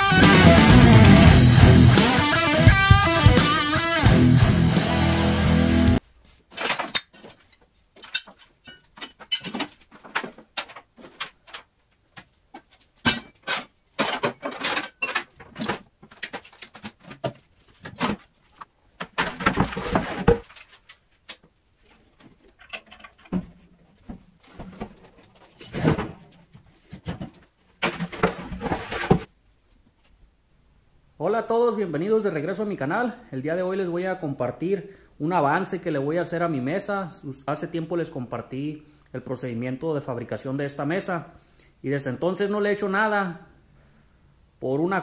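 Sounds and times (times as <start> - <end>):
metal tools clanking: 6.5 - 11.6, 13.0 - 17.2
metal rattling and scraping: 6.5 - 29.3.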